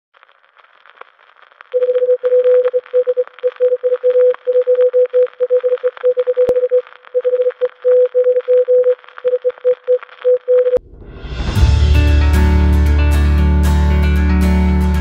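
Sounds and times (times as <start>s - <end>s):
morse code beeps: 1.8s - 10.8s.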